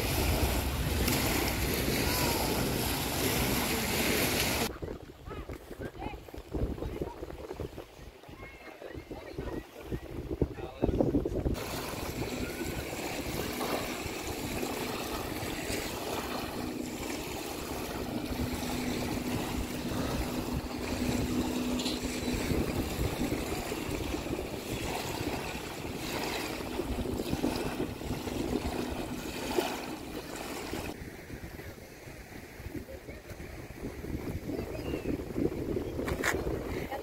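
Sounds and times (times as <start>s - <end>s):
water lapping at a beach: 0.0s - 37.0s
wind buffeting microphone: 0.0s - 37.0s
steady low drone: 11.6s - 31.0s.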